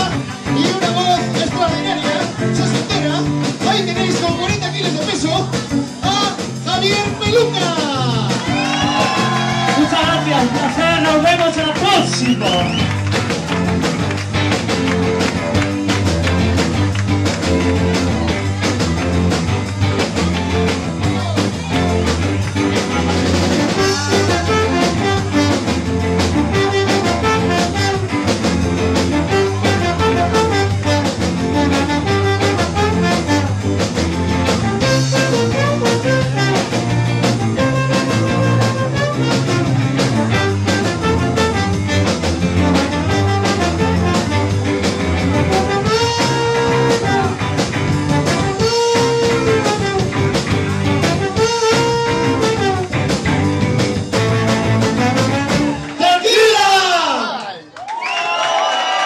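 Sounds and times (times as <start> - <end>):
live band playing upbeat music: 0.0 - 56.6
slide trombone: 23.2 - 53.3, 54.0 - 55.9.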